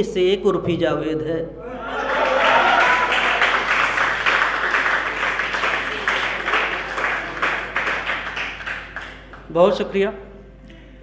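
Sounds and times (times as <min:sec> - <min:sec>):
audience applauding: 0:01.8 - 0:09.5.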